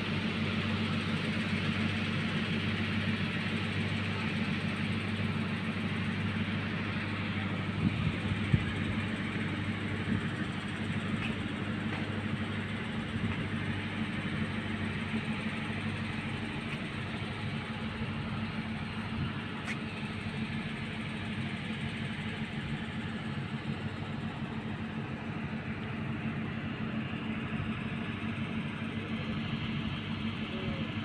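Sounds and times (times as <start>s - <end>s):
low hum: 3.0s - 23.7s.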